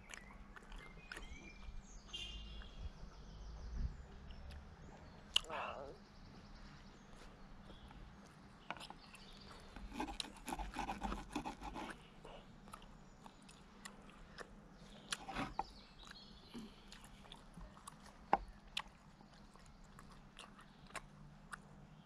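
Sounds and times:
chewing: 0:00.0 - 0:01.9, 0:04.1 - 0:05.8, 0:07.1 - 0:21.9
knife scraping on wooden board: 0:09.9 - 0:12.0, 0:15.2 - 0:15.7.

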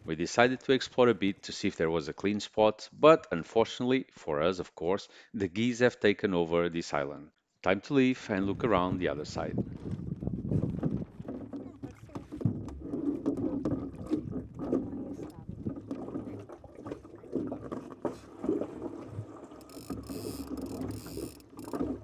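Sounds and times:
water slapping against hull: 0:09.4 - 0:22.0.

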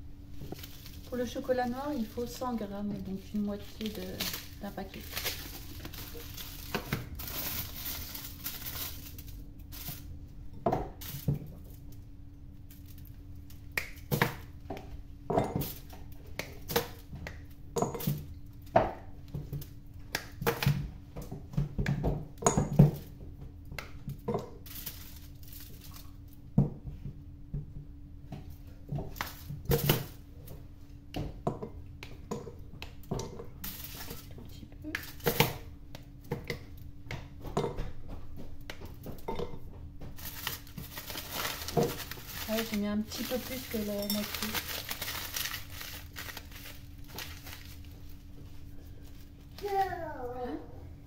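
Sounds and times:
faint steady hum: 0:00.0 - 0:51.0
foil crinkling: 0:00.4 - 0:10.1, 0:24.6 - 0:26.2, 0:33.6 - 0:34.3, 0:35.0 - 0:35.5, 0:40.2 - 0:49.6.

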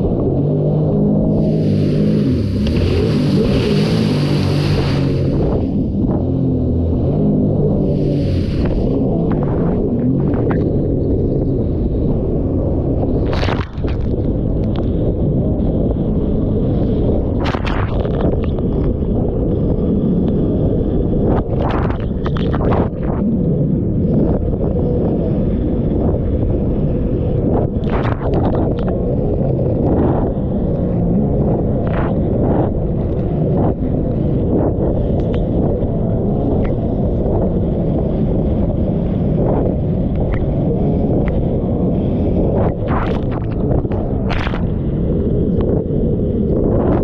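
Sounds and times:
jet ski engine running: 0:00.0 - 0:47.0
wind buffeting microphone: 0:00.0 - 0:47.0
water splashes and hull slaps: 0:01.3 - 0:10.9, 0:13.1 - 0:15.1, 0:16.9 - 0:19.0, 0:21.2 - 0:23.2, 0:27.5 - 0:29.0, 0:36.5 - 0:44.9.

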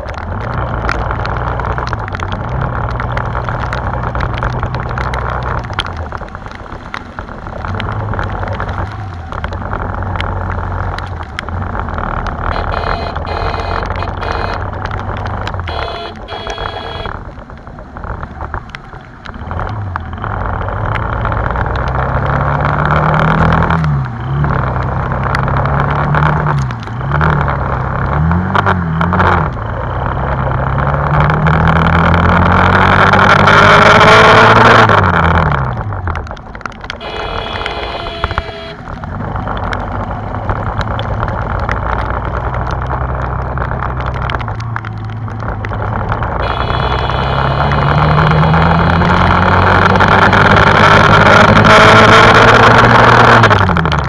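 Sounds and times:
motorcycle engine shifting gears: 0:00.0 - 0:54.0
wind and wet road hiss: 0:00.2 - 0:22.3, 0:35.6 - 0:53.6.

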